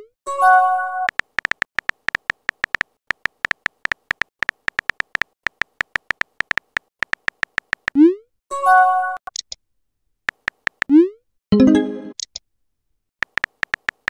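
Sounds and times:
phone keyboard typing clicks: 0:01.1 - 0:08.0, 0:10.3 - 0:10.9, 0:13.2 - 0:14.0.

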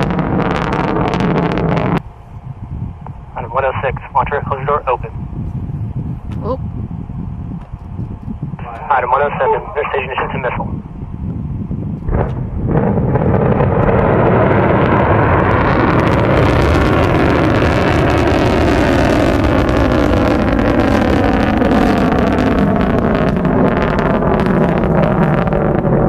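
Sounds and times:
rocket motor roaring with crackle: 0:00.0 - 0:02.0, 0:03.0 - 0:05.2, 0:07.4 - 0:26.0.

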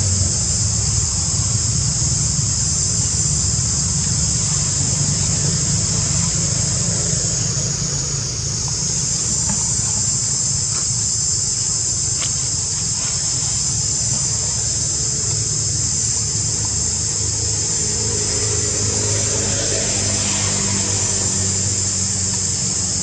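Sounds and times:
low rumble: 0:00.0 - 0:12.4
insects droning: 0:00.0 - 0:23.0.

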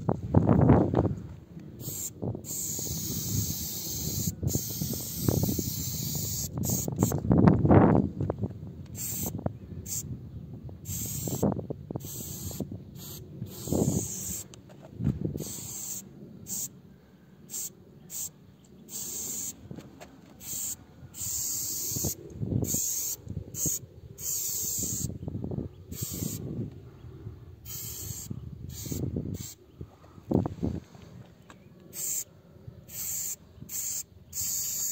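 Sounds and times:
spray paint can hissing: 0:01.8 - 0:07.2, 0:08.9 - 0:10.0, 0:10.9 - 0:14.6, 0:15.4 - 0:16.7, 0:17.5 - 0:18.3, 0:18.9 - 0:19.6, 0:20.4 - 0:25.1, 0:25.9 - 0:26.4, 0:27.6 - 0:29.6, 0:31.9 - 0:32.3, 0:32.9 - 0:34.9.

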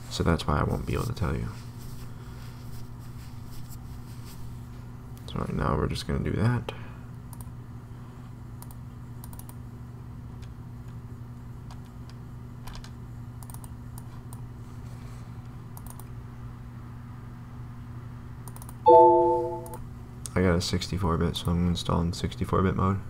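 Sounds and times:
computer mouse clicks: 0:08.6 - 0:09.6, 0:12.8 - 0:14.4, 0:15.8 - 0:16.1, 0:18.4 - 0:18.8.

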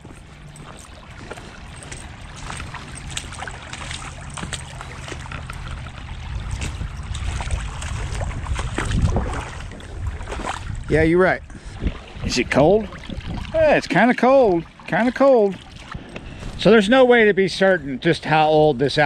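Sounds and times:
wind rumbling on microphone: 0:00.0 - 0:13.8, 0:15.6 - 0:16.9
water trickling: 0:00.0 - 0:16.7.

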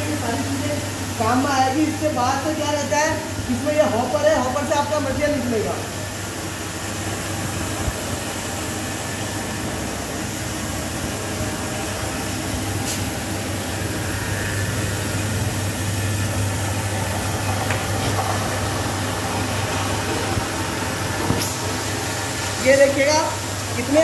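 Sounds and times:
spice grinder humming and rushing: 0:06.1 - 0:24.0.

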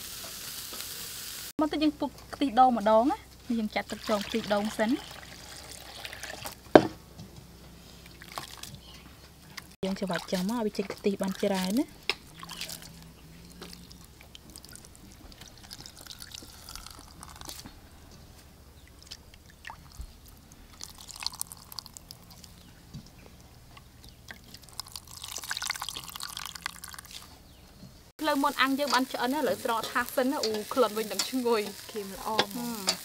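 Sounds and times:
liquid dripping into strainer: 0:10.0 - 0:17.7, 0:18.8 - 0:22.6, 0:24.2 - 0:27.3.

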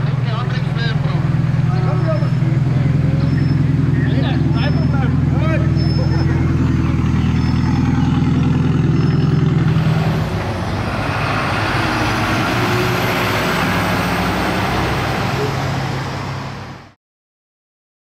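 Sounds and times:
car engine idling: 0:00.0 - 0:13.2
truck engine running: 0:00.0 - 0:16.9.

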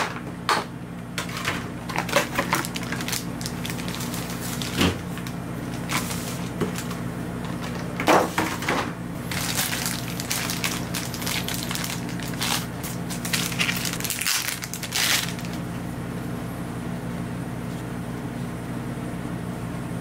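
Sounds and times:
packaging crinkling and clicking: 0:01.2 - 0:15.6.

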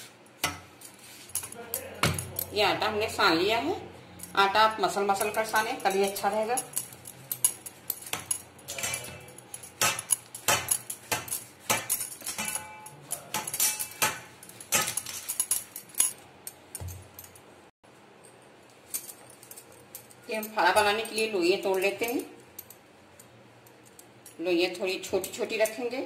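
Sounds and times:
bangles jingling: 0:00.8 - 0:03.2, 0:04.0 - 0:17.5, 0:18.8 - 0:24.4
clinks on metal plate: 0:05.2 - 0:16.2.

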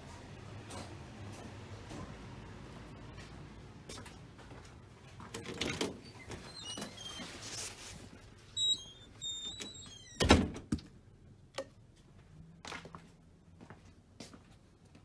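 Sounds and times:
door squeaking: 0:05.4 - 0:07.5, 0:08.6 - 0:10.6.

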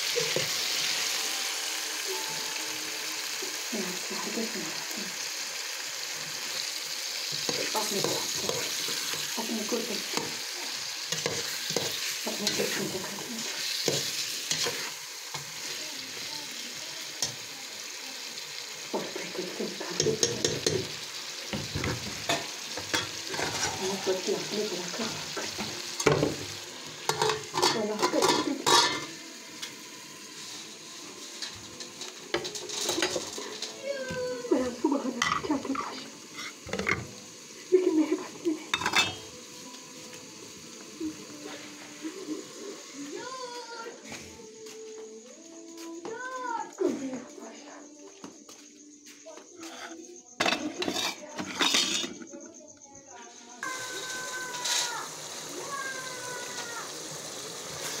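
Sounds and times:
food sizzling in a pot: 0:00.0 - 0:58.0
dishes and utensils clattering: 0:20.0 - 0:24.1, 0:25.1 - 0:29.2, 0:31.4 - 0:37.2, 0:38.7 - 0:39.4, 0:49.6 - 0:52.4
spatula scraping a pot: 0:23.3 - 0:24.0, 0:49.6 - 0:52.3.

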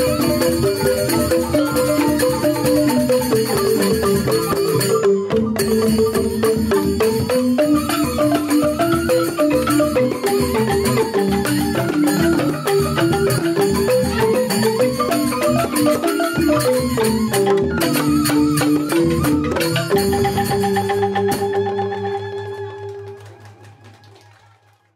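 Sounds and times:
bamboo xylophones playing: 0:00.0 - 0:23.6
bamboo flutes: 0:00.0 - 0:24.9.

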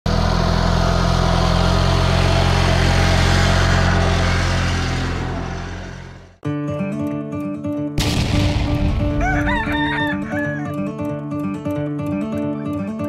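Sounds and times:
garden tractor engine running: 0:00.1 - 0:06.4.

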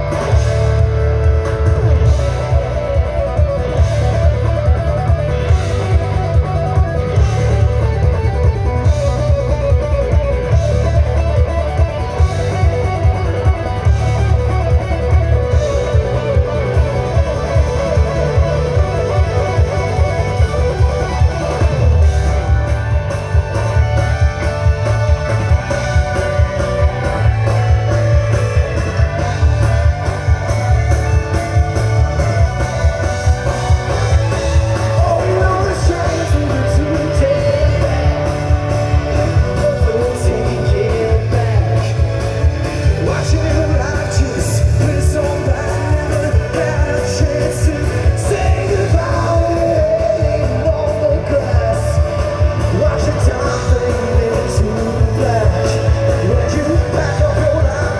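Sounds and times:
live rock band with vocals: 0:00.0 - 0:57.9.

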